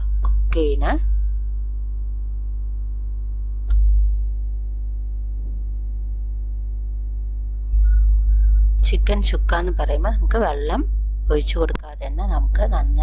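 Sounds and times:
electrical hum: 0.0 - 13.0
sharp click: 3.7 - 3.9.

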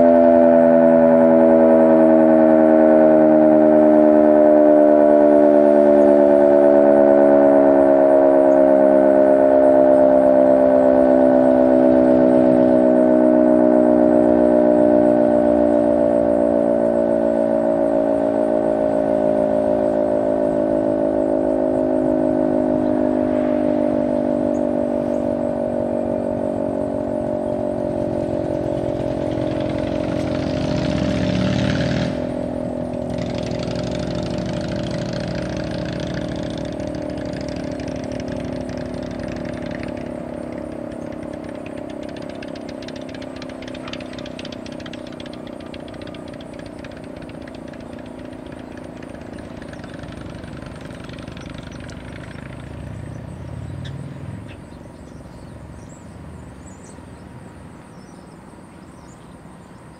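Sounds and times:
siren winding down: 0.0 - 57.7
rush of noise: 16.9 - 28.6.

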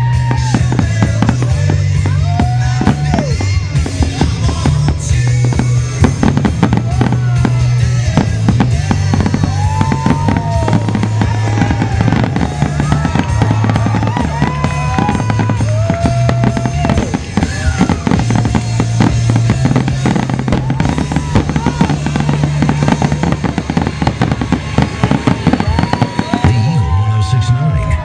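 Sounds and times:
fireworks bursting: 0.0 - 28.0
music playing: 0.0 - 28.0
whistling fireworks: 0.0 - 28.0.

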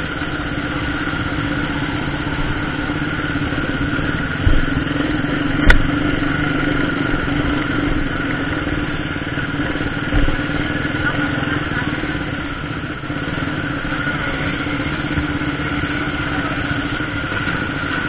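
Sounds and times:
motorcycle engine running: 0.0 - 18.0
low thump: 4.4 - 4.8, 10.1 - 10.5.

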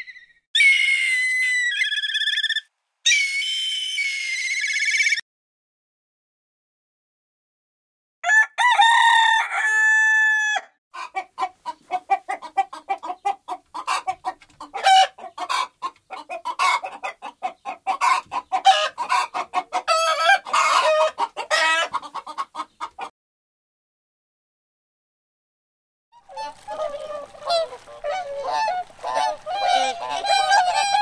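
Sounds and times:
rooster crowing: 8.2 - 10.8, 26.3 - 31.0
hens clucking: 11.0 - 23.1, 26.2 - 31.0.

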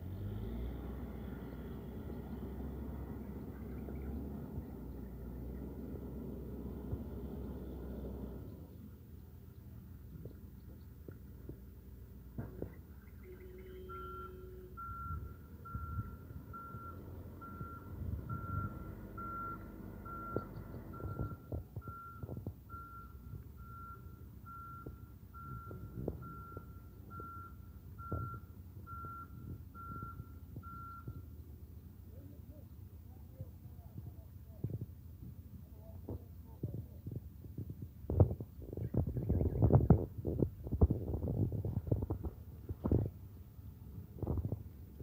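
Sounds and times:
low rumble: 0.0 - 45.0
reversing alarm beeping: 13.2 - 31.2.

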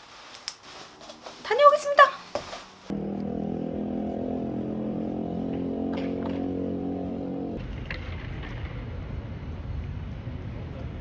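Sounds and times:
low outdoor rumble: 2.8 - 11.0
vehicle engine running: 2.9 - 7.8.

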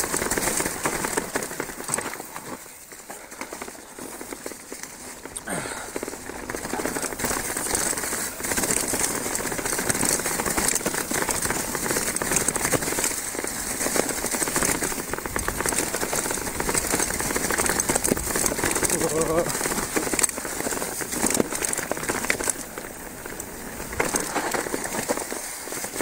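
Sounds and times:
bike rattles and clicks: 0.0 - 26.0
bike tyres rolling over dry leaves: 0.0 - 26.0.

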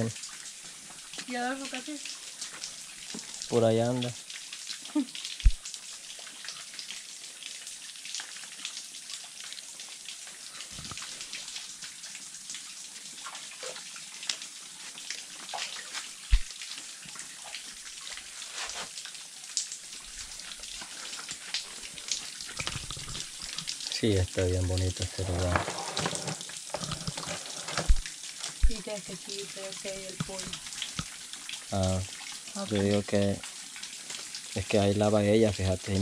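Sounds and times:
water trickling over rocks: 0.0 - 36.0.

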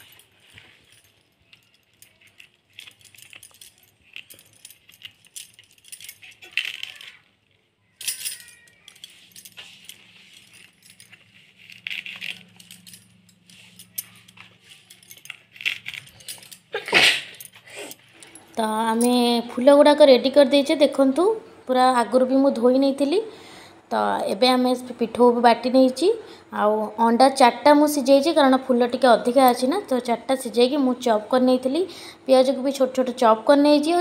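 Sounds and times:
glass bangles clinking: 0.0 - 7.2, 7.9 - 19.4.

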